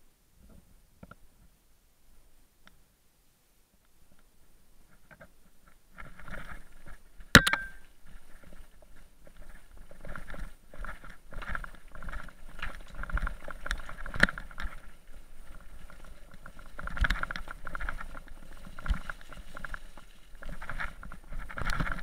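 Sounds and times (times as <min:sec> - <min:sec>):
mountain bike clattering over stones: 0:06.0 - 0:22.0
sharp knock from bike: 0:07.4 - 0:07.8.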